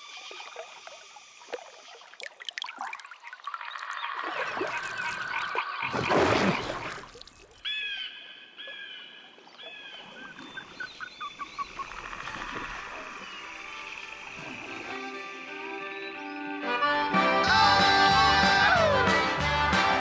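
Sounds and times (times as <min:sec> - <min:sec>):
water splash: 0:00.0 - 0:07.6
frogs croaking: 0:03.0 - 0:07.0, 0:07.6 - 0:16.5
music: 0:14.0 - 0:20.0.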